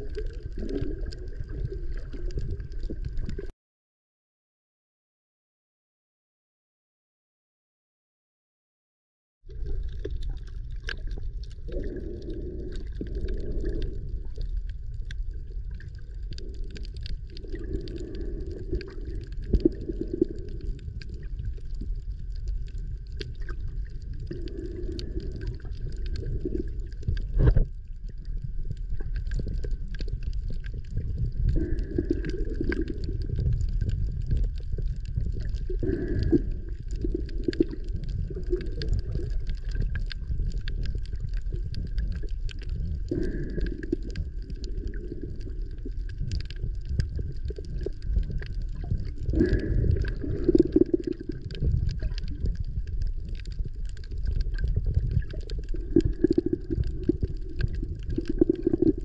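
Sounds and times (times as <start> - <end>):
small clicks and crackles: 0.0 - 3.5, 9.5 - 59.0
underwater rumble of water: 0.0 - 3.5, 9.4 - 59.0
water gurgling: 0.0 - 3.5, 9.5 - 59.0.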